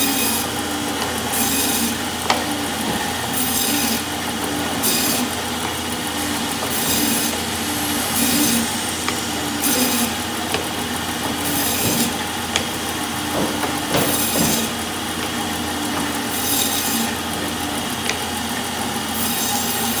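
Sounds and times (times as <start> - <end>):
band saw motor hum: 0.0 - 20.0
saw blade rasping through meat: 1.3 - 2.6, 3.3 - 5.4, 6.1 - 10.2, 16.3 - 17.2.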